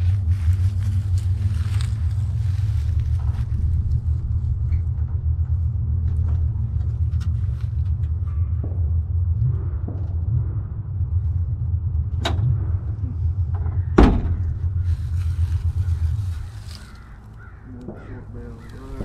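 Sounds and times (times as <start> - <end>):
low rumble: 0.0 - 19.0
steel door slamming: 13.9 - 14.6.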